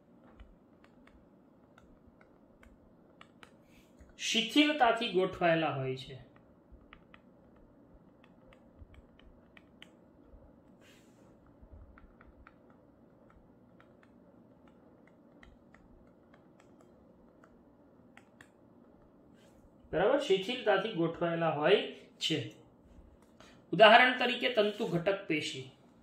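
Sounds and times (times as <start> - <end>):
marker pen tapping on whiteboard: 0.2 - 4.2, 6.3 - 10.3, 11.8 - 19.0.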